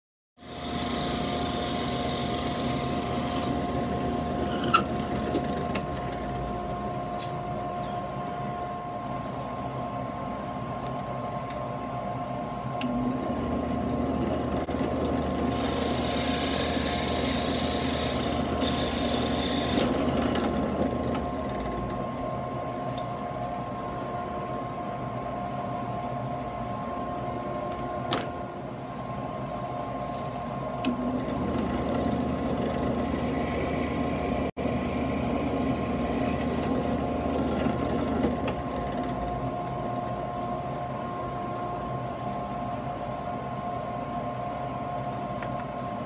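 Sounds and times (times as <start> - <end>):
drill bit boring through wood: 0.4 - 5.7, 13.8 - 21.2, 31.4 - 38.3
drill press humming: 0.4 - 7.0, 12.8 - 22.4, 30.8 - 40.6.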